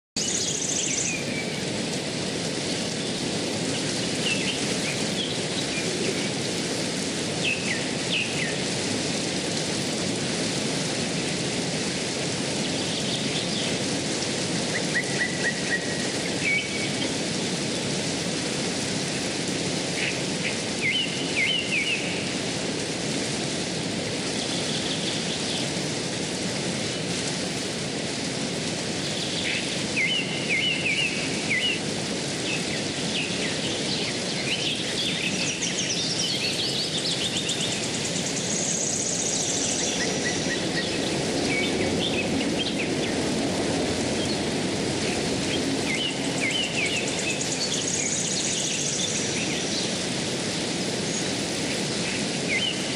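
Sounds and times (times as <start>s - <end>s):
river rushing over rocks: 0.2s - 52.9s.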